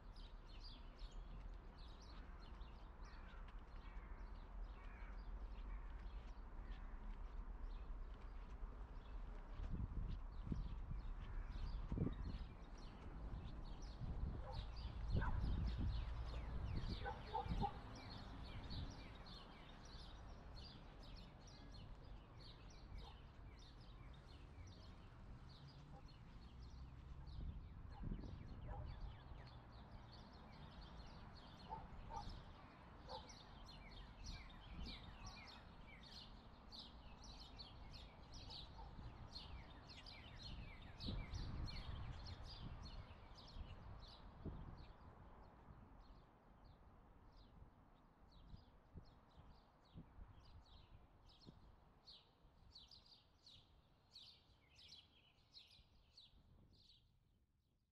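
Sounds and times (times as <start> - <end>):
small birds chirping: 10.4 - 44.3.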